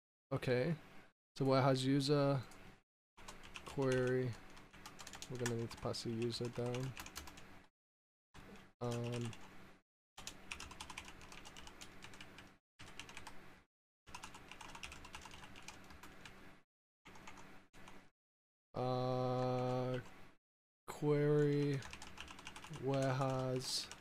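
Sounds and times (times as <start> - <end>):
typing on computer keyboard: 3.2 - 7.4, 8.8 - 9.5, 10.2 - 13.3, 14.1 - 16.4, 21.4 - 24.0.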